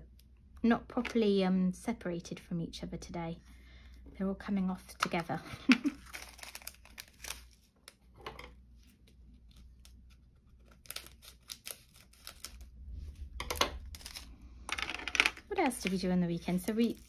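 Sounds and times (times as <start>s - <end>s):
scissors snipping plastic bag: 15.6s - 17.0s.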